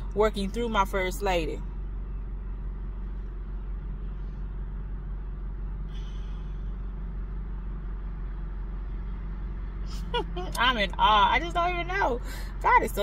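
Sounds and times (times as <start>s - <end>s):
car engine rumble inside cabin: 0.0s - 13.0s.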